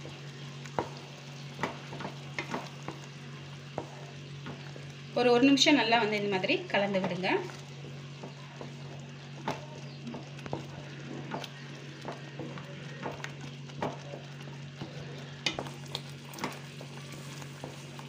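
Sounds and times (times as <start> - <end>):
spatula scraping and tapping pan: 6.9 - 18.0.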